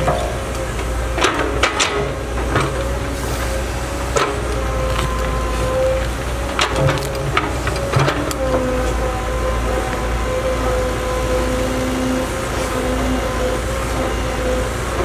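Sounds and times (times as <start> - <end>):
excavator bucket knocks and clanks: 0.0 - 3.1, 4.0 - 9.0
excavator diesel engine whining: 0.0 - 15.0.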